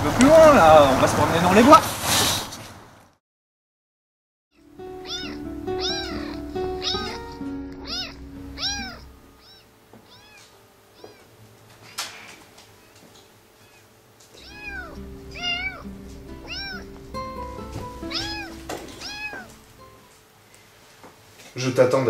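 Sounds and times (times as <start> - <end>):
music with held notes: 4.6 - 13.1, 14.4 - 20.2
kittens mewing: 5.0 - 11.3, 13.6 - 19.7.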